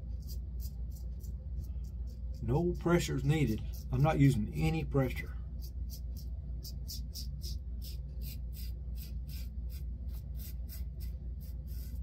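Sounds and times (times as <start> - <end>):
razor scraping stubble: 0.0 - 12.0
steady low hum: 0.0 - 12.0.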